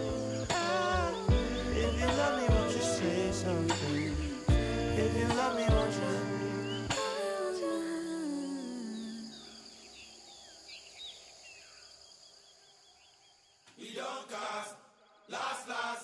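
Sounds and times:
birds chirping: 0:00.0 - 0:07.0
song: 0:00.0 - 0:08.0
voices chanting: 0:00.0 - 0:09.6, 0:13.7 - 0:16.0.

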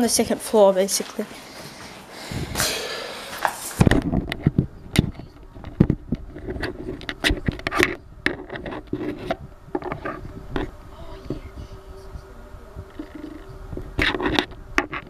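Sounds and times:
sharp knocks and scrapes: 0:02.6 - 0:10.7
faint buzz: 0:08.9 - 0:15.0.

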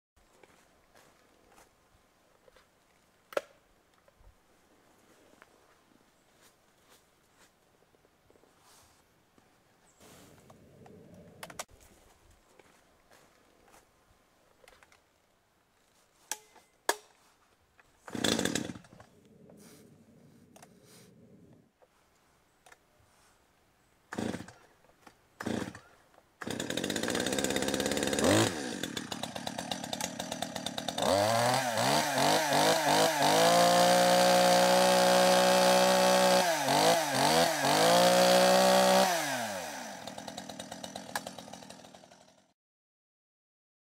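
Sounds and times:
chainsaw engine revving: 0:18.0 - 0:19.1, 0:24.1 - 0:24.6, 0:25.4 - 0:42.5
chainsaw pull-starting: 0:18.0 - 0:19.6, 0:24.1 - 0:42.5.

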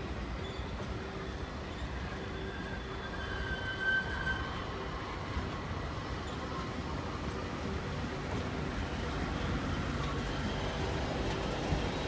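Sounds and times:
train wheels rumbling on rail: 0:00.0 - 0:12.0
thin wheel squeal: 0:01.4 - 0:04.7.

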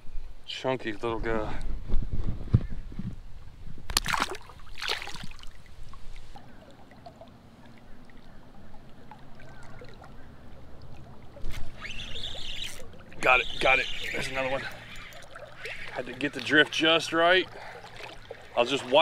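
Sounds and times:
water splashing: 0:03.9 - 0:19.0
river current washing: 0:04.0 - 0:19.0.

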